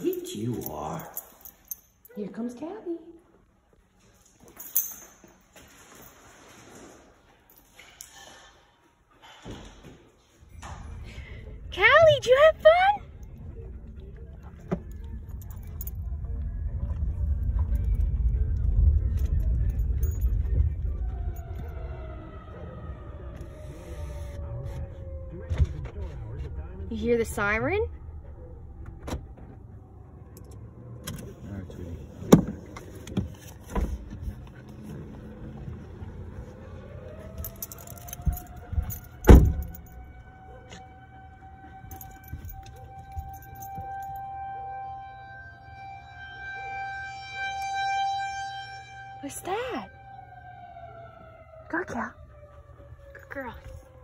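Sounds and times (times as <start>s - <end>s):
light metallic jingling: 0.0s - 2.4s, 4.1s - 6.6s, 7.3s - 8.5s, 19.2s - 20.5s, 37.2s - 40.4s
car road and engine rumble: 10.5s - 54.0s
tornado siren wailing: 11.7s - 13.2s, 15.8s - 31.9s, 35.2s - 54.0s.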